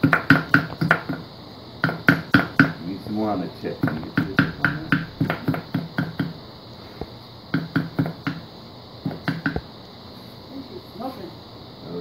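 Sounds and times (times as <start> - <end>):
chisel striking hot steel: 3.8 - 6.4.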